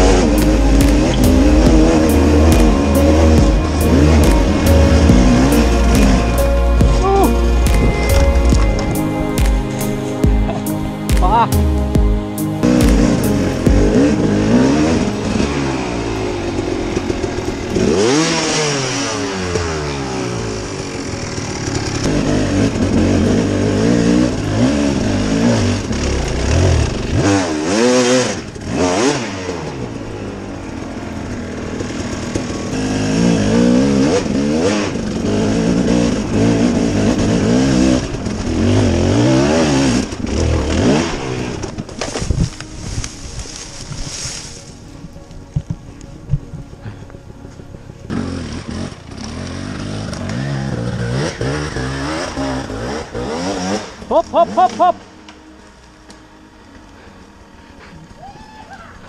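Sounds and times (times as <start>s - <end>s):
motorcycle engine revving: 0.0s - 44.8s, 45.7s - 58.2s
motorcycle knocking over rough ground: 39.9s - 44.1s.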